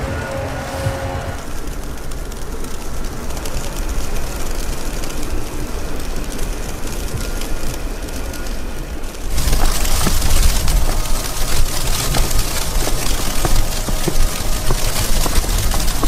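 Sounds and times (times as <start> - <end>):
wind buffeting microphone: 9.2 - 16.0.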